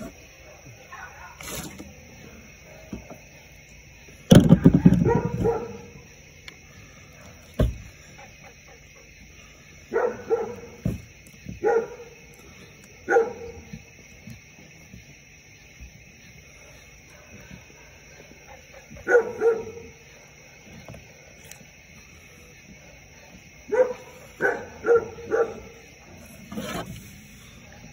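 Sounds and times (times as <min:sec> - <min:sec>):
dog barking: 0:00.4 - 0:01.6, 0:04.8 - 0:06.1, 0:09.8 - 0:10.8, 0:11.6 - 0:12.2, 0:13.0 - 0:13.8, 0:17.1 - 0:20.1, 0:23.7 - 0:25.9.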